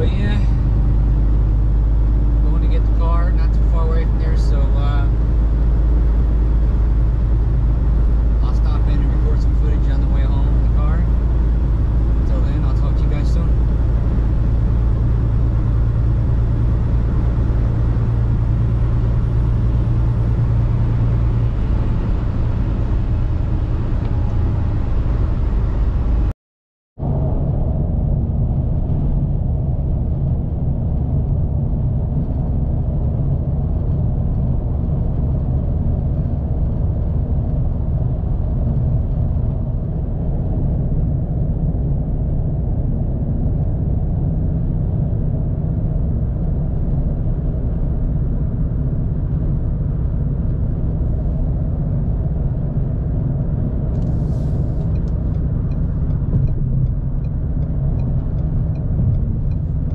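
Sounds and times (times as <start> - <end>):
road and engine rumble in car: 0.0 - 26.3, 27.0 - 59.9
brief hiss: 54.1 - 54.8.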